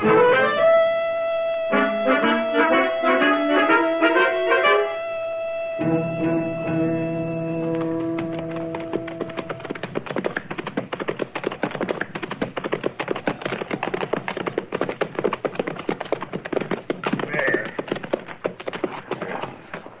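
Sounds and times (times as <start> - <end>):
horse hooves clopping: 6.7 - 20.0.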